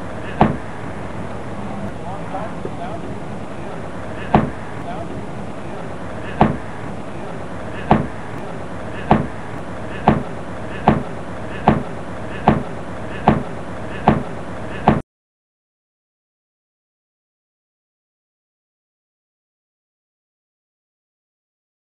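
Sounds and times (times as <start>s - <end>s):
steady background noise: 0.0s - 15.0s
sharp knocks: 0.3s - 0.7s, 4.2s - 4.6s, 6.3s - 6.7s, 7.8s - 9.4s, 10.0s - 15.0s.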